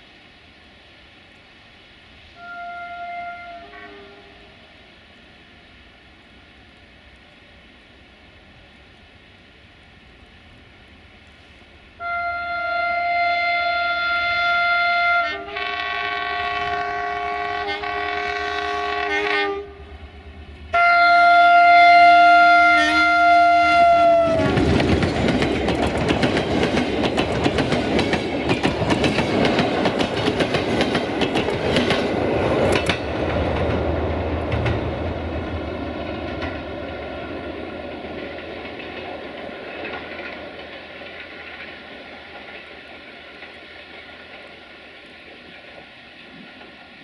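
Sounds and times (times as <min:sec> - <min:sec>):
locomotive horn: 0:02.4 - 0:04.6, 0:12.0 - 0:19.9, 0:20.7 - 0:24.7
train wheels clacking on rails: 0:23.9 - 0:47.0.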